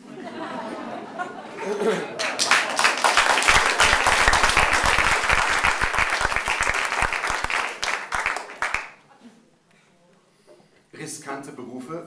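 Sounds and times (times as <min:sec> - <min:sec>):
audience applauding: 0:01.6 - 0:09.0.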